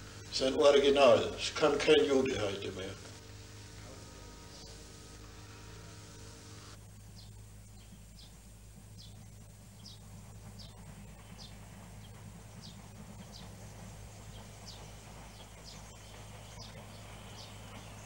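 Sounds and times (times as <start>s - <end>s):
faint low hum: 0.0s - 18.0s.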